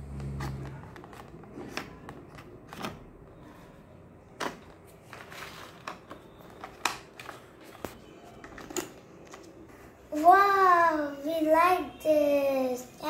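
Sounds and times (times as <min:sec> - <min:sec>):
crayons clicking on plastic trays: 0:00.2 - 0:03.4, 0:04.3 - 0:09.6.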